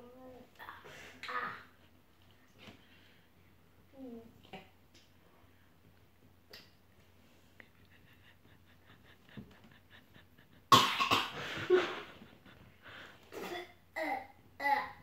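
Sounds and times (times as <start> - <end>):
child coughing: 10.7 - 11.4, 13.3 - 14.2.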